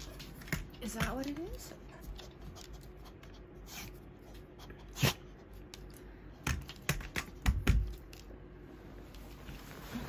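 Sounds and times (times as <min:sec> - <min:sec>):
dog sniffing and snorting: 0:01.6 - 0:05.7.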